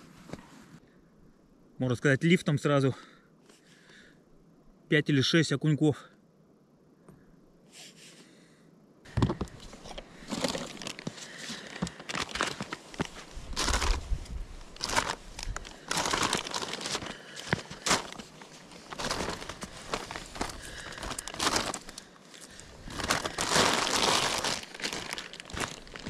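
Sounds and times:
plastic bag crinkling: 0:09.8 - 0:26.0.

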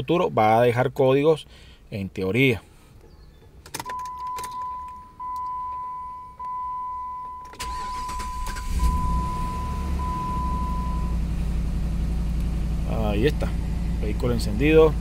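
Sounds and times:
ignition switch clicks: 0:03.6 - 0:08.8
dashboard warning chime beeping: 0:03.8 - 0:11.2
car engine idling: 0:05.0 - 0:15.0
starter cranking engine: 0:07.6 - 0:09.2.

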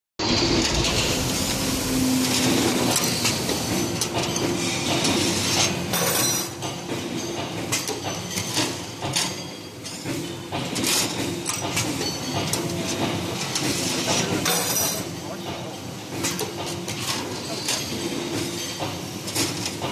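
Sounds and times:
steady motor hum: 0:00.2 - 0:07.7.

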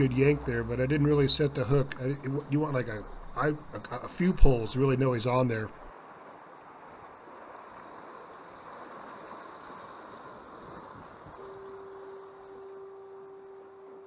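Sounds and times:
ocean surf: 0:00.0 - 0:14.0
steady humming tone: 0:11.3 - 0:14.0.

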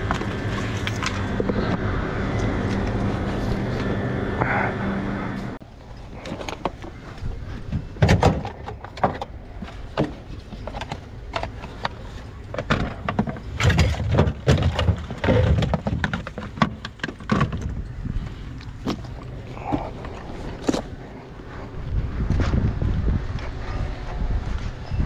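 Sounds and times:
tools clattering in metal drawer: 0:08.0 - 0:17.6.

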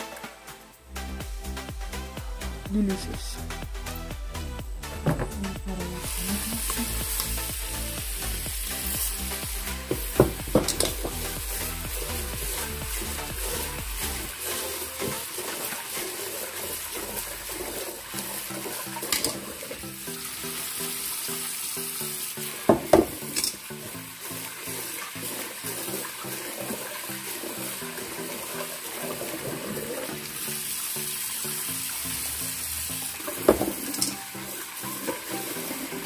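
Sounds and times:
background music: 0:00.0 - 0:36.0
tap water running into sink: 0:04.8 - 0:36.0
rice washed by hand: 0:04.9 - 0:36.0
pot knocking: 0:05.0 - 0:05.5, 0:09.9 - 0:11.3, 0:22.6 - 0:23.6, 0:33.4 - 0:34.2.

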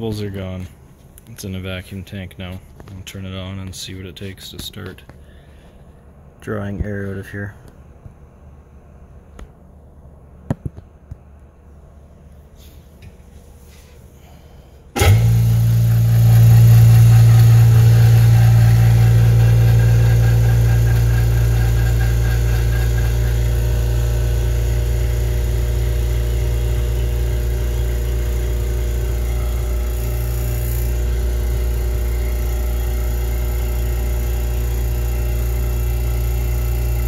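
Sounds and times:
vacuum pump humming: 0:14.2 - 0:37.0.

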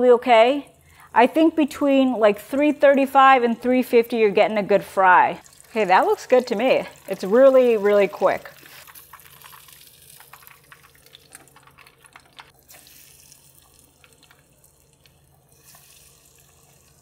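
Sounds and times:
hot oil crackling and popping: 0:05.4 - 0:17.0.

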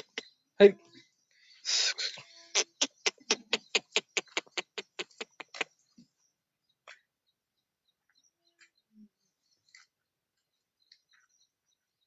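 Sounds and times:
person clicking tongue: 0:02.6 - 0:05.7.

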